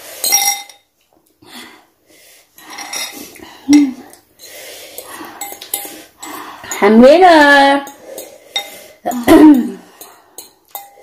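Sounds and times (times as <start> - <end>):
cutlery clinking and scraping on dish: 10.0 - 11.0.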